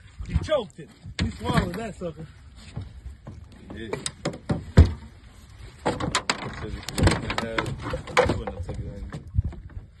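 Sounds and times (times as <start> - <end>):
fish and net thumping on boat deck: 2.7 - 9.8.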